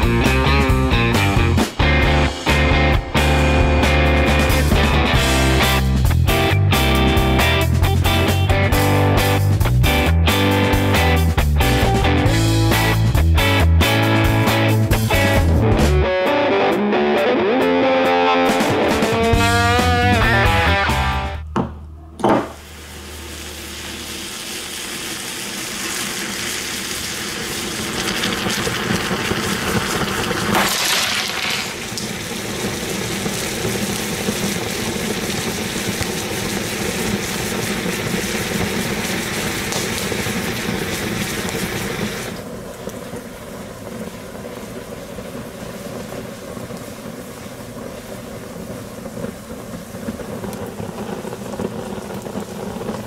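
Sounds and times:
chocolate sizzling hiss: 0:22.5 - 0:53.0.

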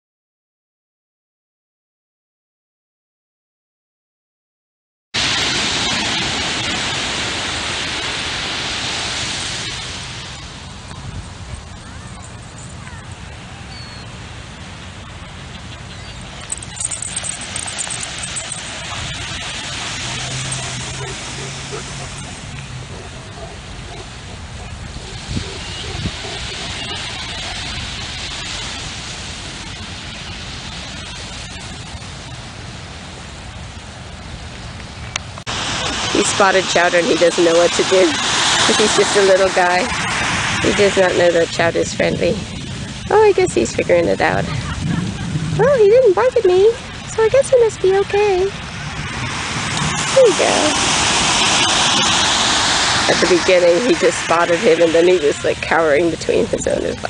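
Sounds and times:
ocean surf on beach: 0:05.2 - 0:57.0
waves rushing hiss: 0:05.2 - 0:57.0.

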